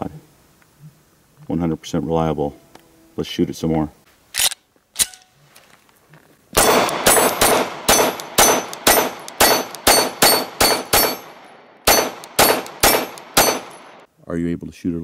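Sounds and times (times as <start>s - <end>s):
pistol shots: 6.6s - 14.1s.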